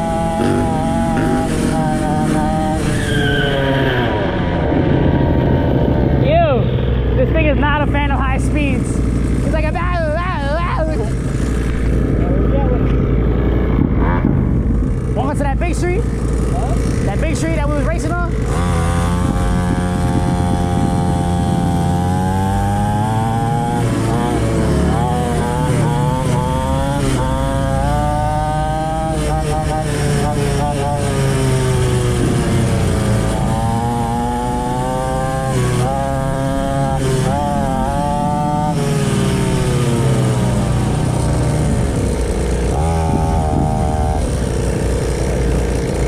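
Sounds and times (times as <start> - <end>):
small two-stroke engine revving: 0.0 - 46.0
wind noise: 8.7 - 26.0, 26.7 - 45.8.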